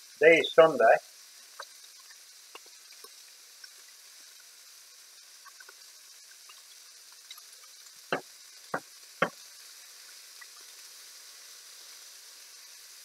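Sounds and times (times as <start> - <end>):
sausages sizzling in a pan: 0.0 - 13.0
spatula knocking on pan: 8.1 - 9.4.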